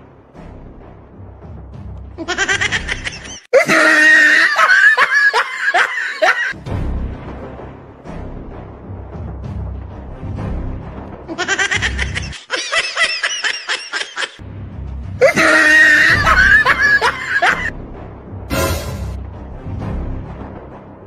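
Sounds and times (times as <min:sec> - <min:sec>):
rapid laughter: 0:02.2 - 0:06.6, 0:11.3 - 0:14.4, 0:15.2 - 0:17.7
high-pitched shriek of laughter: 0:03.3 - 0:06.6, 0:15.2 - 0:17.7
background music with low beat: 0:06.6 - 0:11.8.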